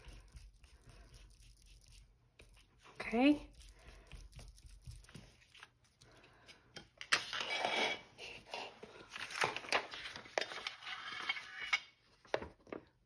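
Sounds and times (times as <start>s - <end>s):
paper rustling and crinkling: 8.6s - 11.3s.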